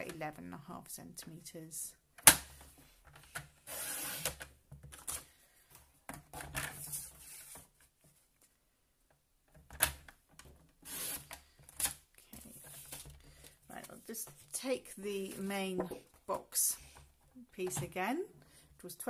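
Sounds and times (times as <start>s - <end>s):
paper trimmer blade scraping: 3.7s - 4.4s, 10.9s - 11.3s.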